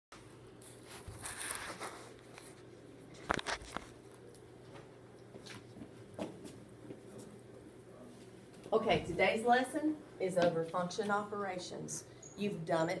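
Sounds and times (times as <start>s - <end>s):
steady low hum: 0.2s - 13.0s
camera handling rustle: 0.7s - 4.0s.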